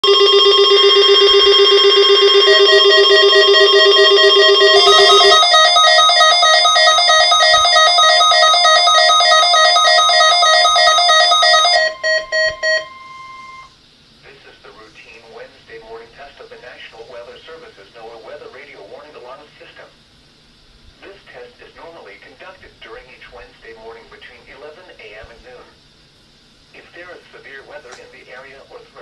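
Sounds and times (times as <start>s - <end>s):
weather radio alarms beeping: 0.1s - 13.7s.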